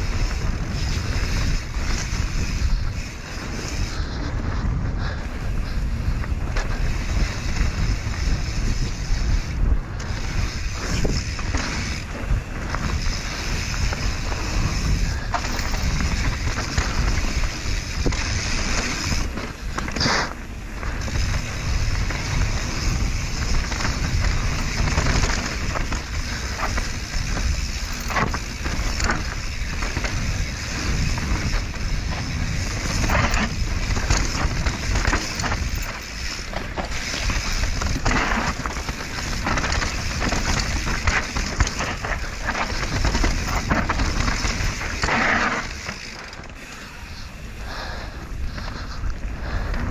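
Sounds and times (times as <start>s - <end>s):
wind on microphone: 0.0s - 46.6s
bike rattling and knocking: 0.0s - 49.9s
bike tyre noise: 0.0s - 49.9s.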